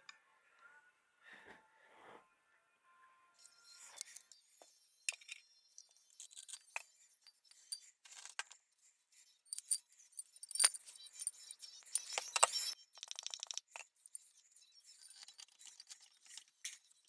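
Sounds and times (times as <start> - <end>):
metallic clinks and taps: 5.1 - 8.6, 9.5 - 14.2.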